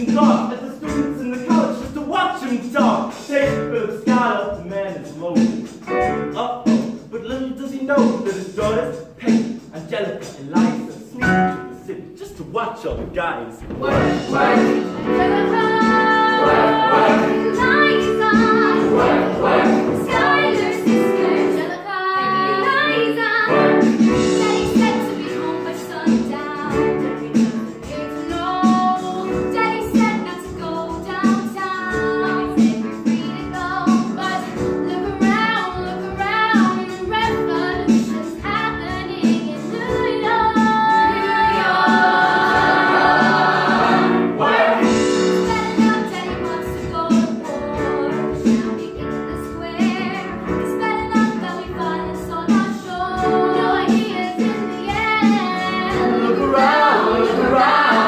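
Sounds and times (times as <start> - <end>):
instrumental accompaniment: 0.0 - 58.0
young women singing: 13.8 - 23.6, 24.4 - 58.0.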